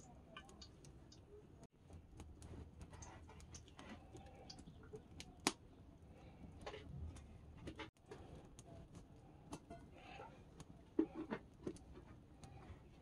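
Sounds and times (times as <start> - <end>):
small clicks and ticks: 0.0 - 5.6.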